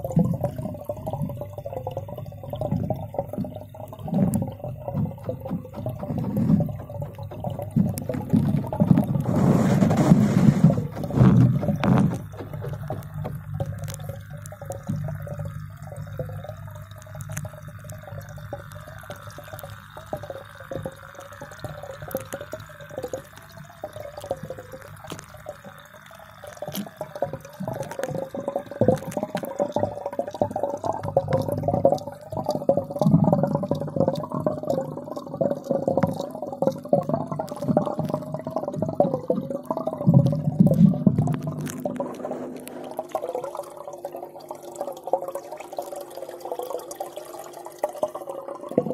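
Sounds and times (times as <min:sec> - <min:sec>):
muffled underwater wash: 0:00.0 - 0:48.9
underwater clicks: 0:00.0 - 0:48.9.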